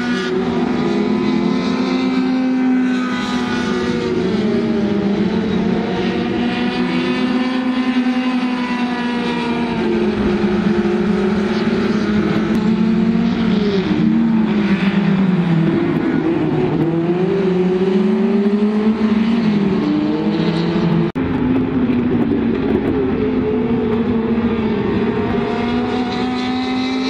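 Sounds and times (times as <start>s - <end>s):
race car engines revving: 0.0s - 27.0s.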